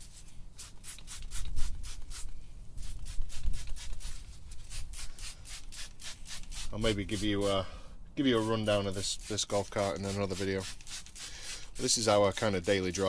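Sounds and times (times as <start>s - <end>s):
squeeze bottle squirting: 0.0s - 7.3s, 9.2s - 11.9s.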